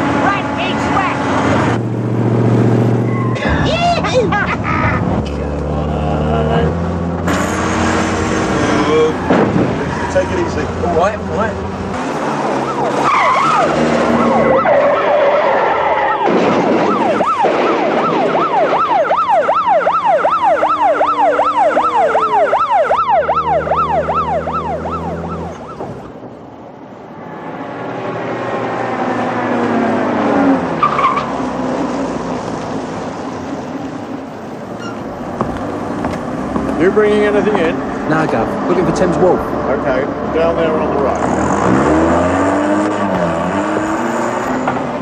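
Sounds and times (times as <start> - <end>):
traffic noise: 0.0 - 45.0
vehicle tyre and engine noise: 0.0 - 45.0
wailing siren: 12.3 - 26.2.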